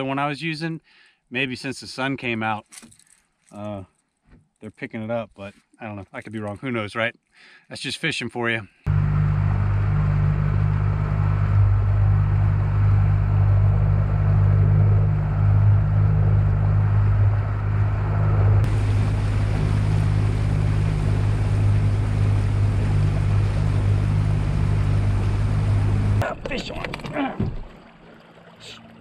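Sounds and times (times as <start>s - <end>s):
motorboat engine humming: 8.9s - 29.0s
hiss of water and wind: 15.2s - 26.2s.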